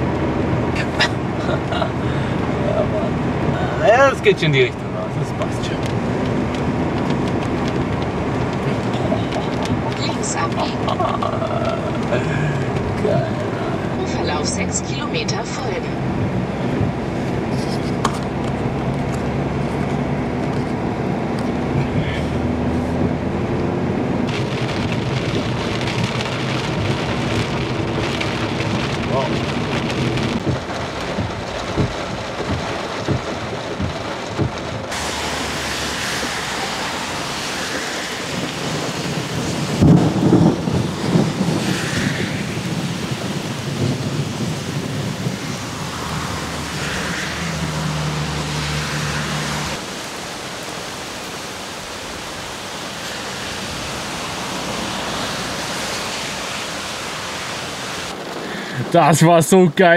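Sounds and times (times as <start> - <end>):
steady rain: 0.0 - 59.9
thunder rumbling: 24.1 - 50.9.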